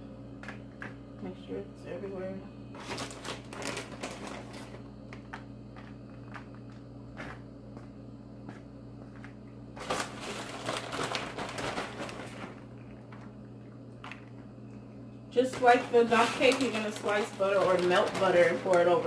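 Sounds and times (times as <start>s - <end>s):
steady low hum: 0.0s - 19.0s
plastic bag rustling and crinkling: 2.7s - 4.9s, 9.8s - 13.3s, 15.4s - 19.0s.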